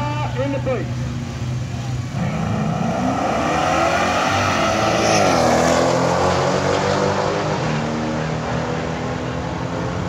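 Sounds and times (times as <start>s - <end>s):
car engine at full throttle: 0.3s - 10.0s.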